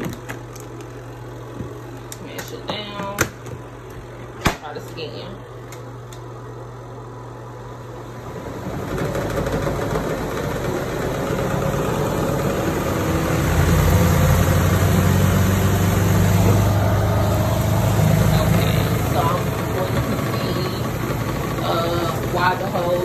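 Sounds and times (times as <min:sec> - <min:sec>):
washing machine motor drone: 0:00.0 - 0:23.0.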